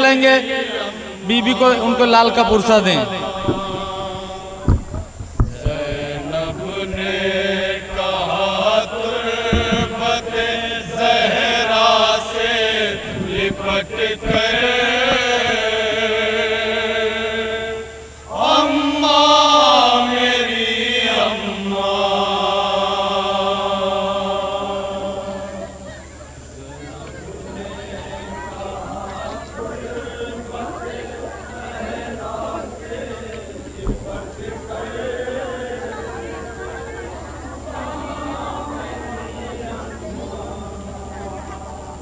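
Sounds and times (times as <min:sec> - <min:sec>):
men chanting into microphone: 0:00.0 - 0:25.9, 0:26.5 - 0:42.0.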